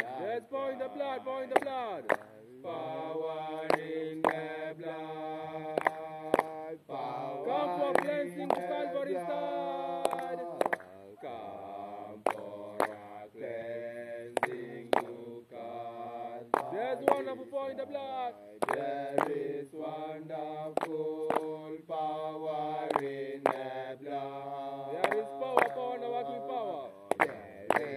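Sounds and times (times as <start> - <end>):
voices chanting a hymn: 0.0 - 27.9.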